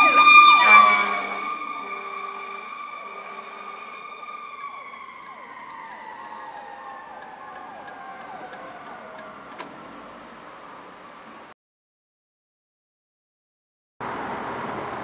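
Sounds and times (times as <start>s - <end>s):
fire engine siren winding down: 0.0s - 10.4s.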